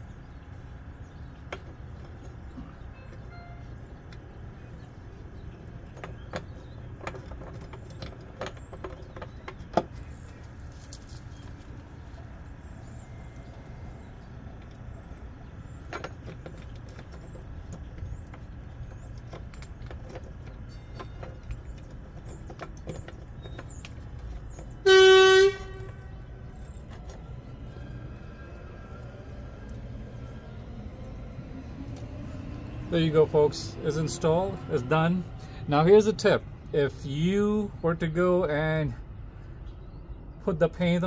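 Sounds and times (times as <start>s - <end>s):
steady low rumble: 0.0s - 24.9s, 25.5s - 41.0s
vehicle horn toot: 24.8s - 26.2s.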